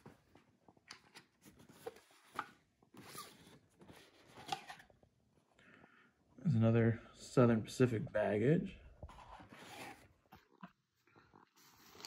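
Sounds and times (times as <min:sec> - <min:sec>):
cardboard and paper rustling: 0:00.0 - 0:04.9, 0:09.1 - 0:10.7.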